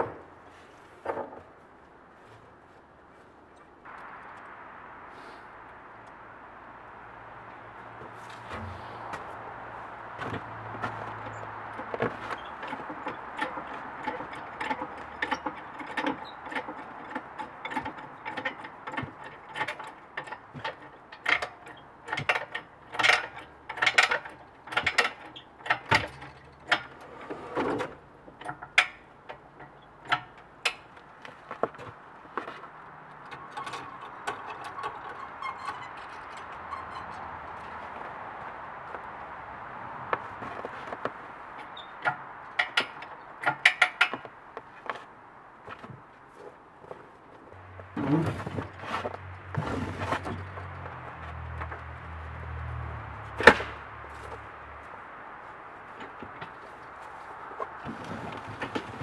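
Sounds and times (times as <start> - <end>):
engine hoist metal clanks: 7.5 - 9.4, 10.0 - 39.2, 40.0 - 45.0, 47.9 - 54.6, 55.8 - 59.0.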